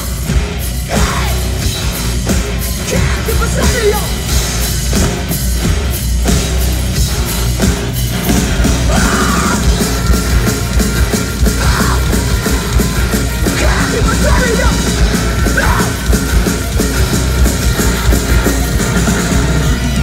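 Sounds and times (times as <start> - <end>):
live heavy rock music: 0.0 - 20.0
person shouting: 8.9 - 9.6.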